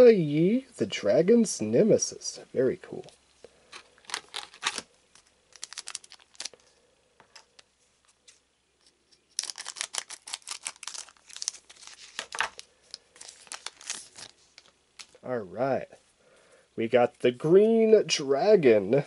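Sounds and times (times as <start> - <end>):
foil wrapper crinkling: 3.7 - 6.8, 8.2 - 15.2.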